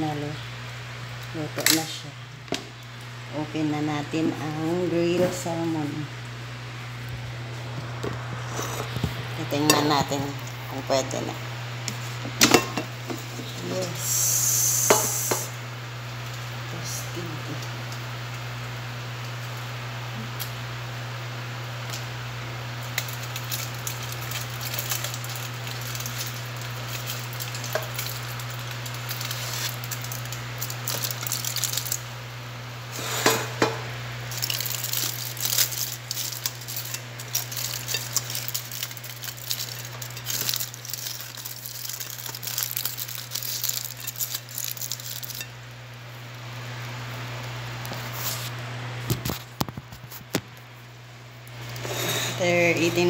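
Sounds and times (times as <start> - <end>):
aluminium foil crinkling: 21.8 - 32.2, 34.2 - 45.7, 47.8 - 50.4.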